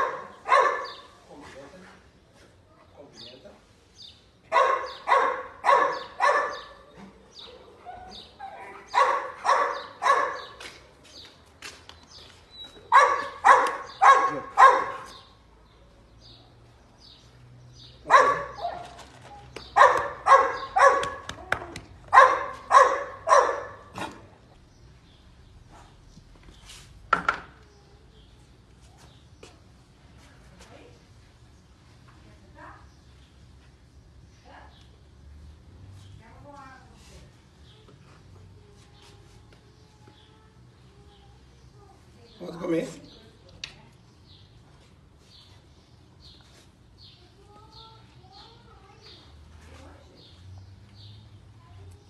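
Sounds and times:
dog barking: 0:00.0 - 0:01.1, 0:04.5 - 0:06.9, 0:07.9 - 0:10.6, 0:12.9 - 0:15.2, 0:18.0 - 0:19.0, 0:19.8 - 0:21.4, 0:22.1 - 0:24.3.

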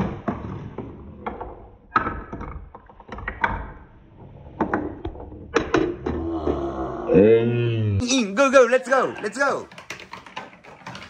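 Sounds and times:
wooden knocks and clacks: 0:09.6 - 0:11.0.

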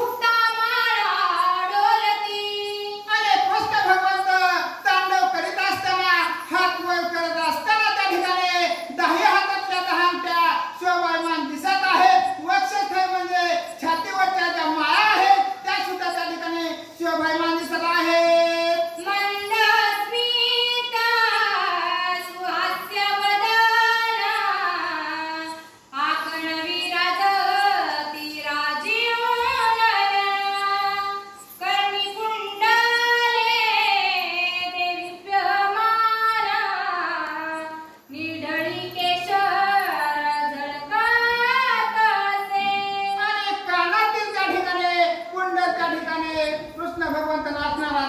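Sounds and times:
woman singing: 0:00.0 - 0:03.9, 0:18.7 - 0:44.8.

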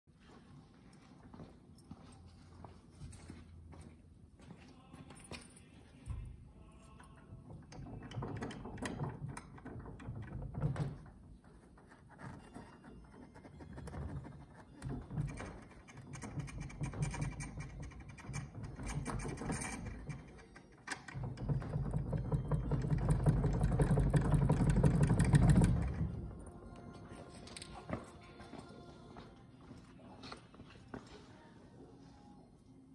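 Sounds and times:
nose gear rattling and clunking: 0:14.8 - 0:26.5.

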